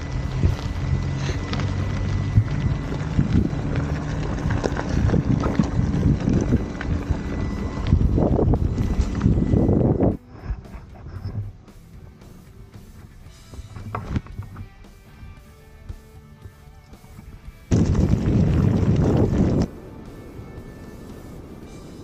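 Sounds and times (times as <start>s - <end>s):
tyre rumble on gravel: 0.0s - 10.1s, 13.0s - 15.3s, 17.1s - 19.8s
wind buffeting microphone: 0.0s - 12.1s, 17.0s - 22.0s.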